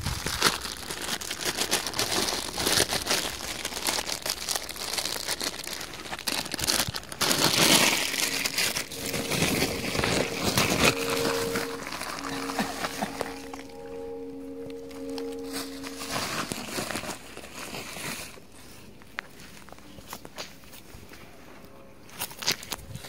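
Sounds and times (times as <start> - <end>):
plastic bag crinkling: 0.0 - 18.4.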